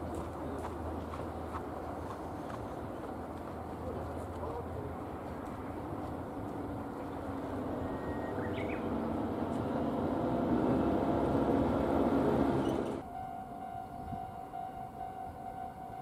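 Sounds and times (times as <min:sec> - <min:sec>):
electric train running on rails: 0:00.0 - 0:16.0
level-crossing warning signal: 0:07.5 - 0:16.0
train squeal: 0:07.7 - 0:09.0, 0:12.5 - 0:16.0.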